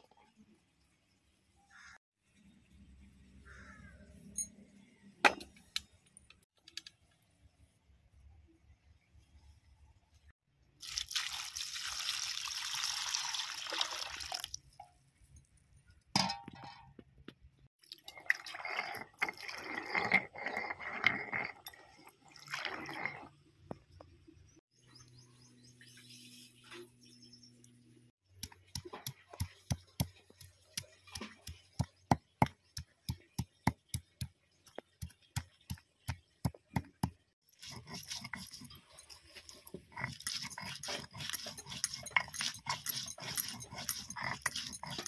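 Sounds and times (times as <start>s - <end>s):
stone grinding and scraping: 18.0s - 23.8s, 34.7s - 45.0s.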